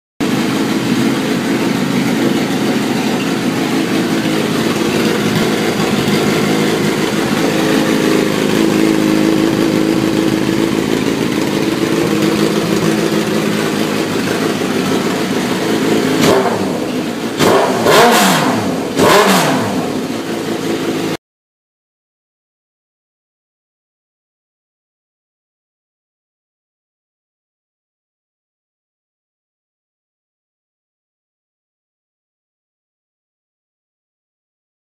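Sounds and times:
motorcycle engine idling: 0.2s - 21.2s
motorcycle engine revving: 0.2s - 21.2s.

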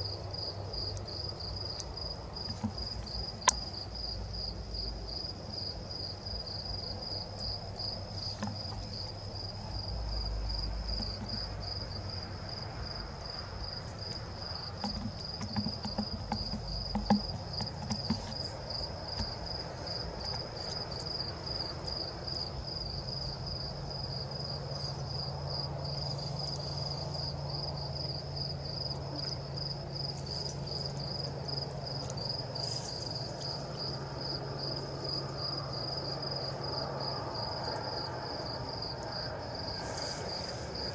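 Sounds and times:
cricket chirping: 0.0s - 40.9s
sharp knocks: 2.5s - 3.6s, 14.8s - 18.5s.

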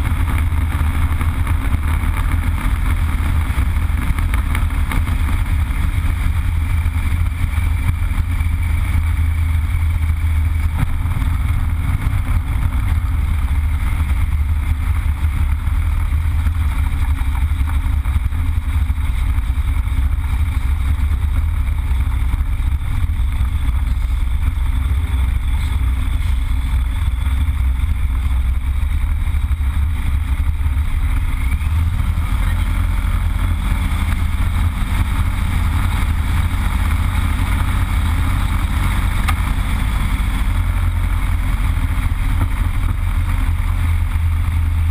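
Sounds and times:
radial aircraft engine running: 0.0s - 44.9s.

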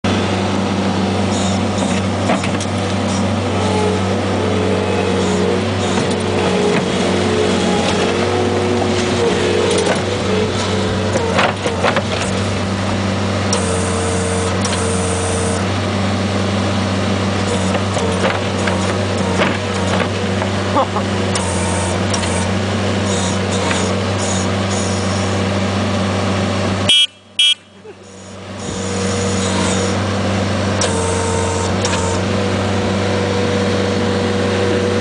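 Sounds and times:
diesel engine under load: 0.0s - 35.0s
hydraulic whine: 0.1s - 35.0s
knocks and clatters: 9.8s - 12.5s.

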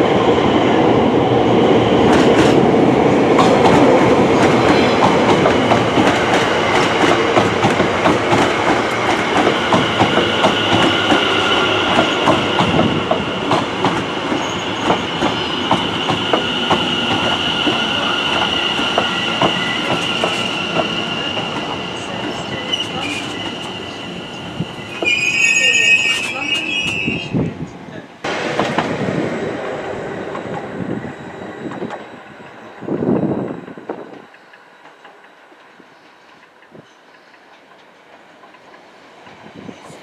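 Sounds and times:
train wheels clicking over rail joints: 2.0s - 2.6s, 3.3s - 23.7s
high wheel squeal: 14.4s - 27.5s.

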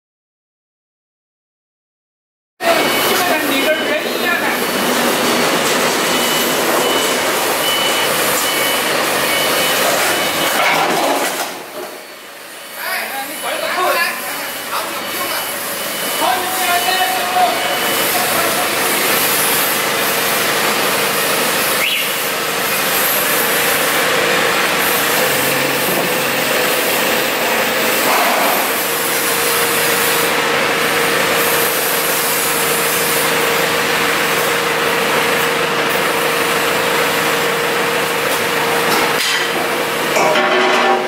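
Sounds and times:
engine running steadily: 14.2s - 41.0s.

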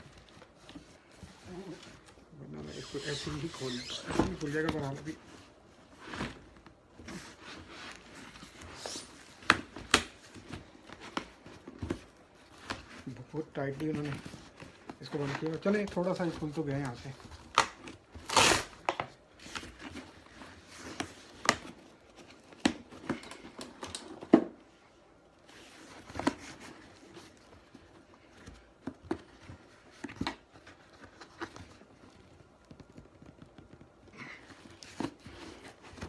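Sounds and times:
packing strap scraping and snapping: 17.5s - 18.9s.

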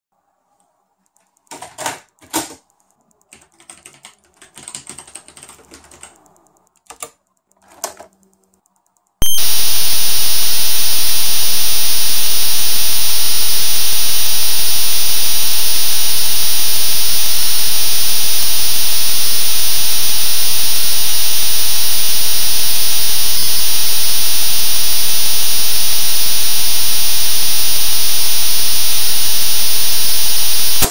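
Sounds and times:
data hiss with high whistle: 9.2s - 30.9s.

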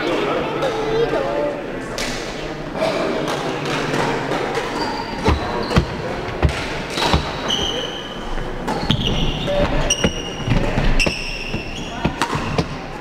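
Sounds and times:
shoe squeaks: 4.8s - 6.0s, 7.0s - 12.7s
racket hitting shuttlecock: 11.0s - 12.8s.

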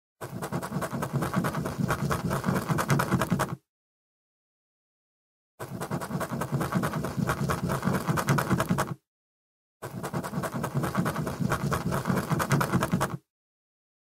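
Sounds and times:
pencil scribbling on paper: 0.2s - 3.6s, 5.6s - 9.0s, 9.8s - 13.2s.

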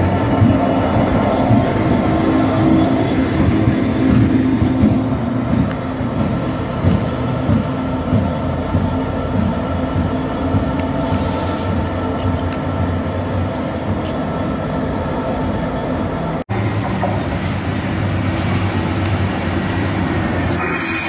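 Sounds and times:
wheels clicking over rail joints: 0.0s - 11.2s
diesel locomotive engine drone: 0.0s - 21.0s.

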